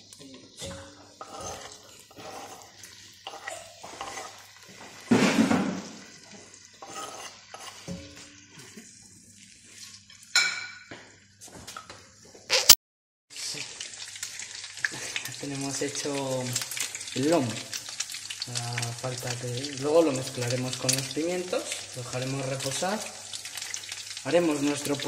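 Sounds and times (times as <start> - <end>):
oil sizzling: 0.0 - 25.0
knife scraping cutting board: 1.2 - 2.7, 3.3 - 4.4, 6.8 - 7.9.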